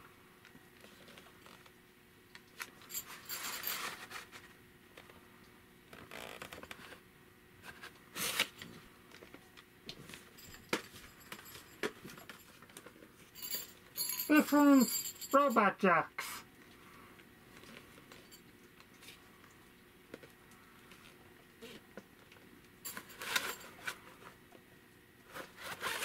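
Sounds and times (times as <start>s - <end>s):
cassette sliding in cardboard sleeve: 25.3s - 26.0s.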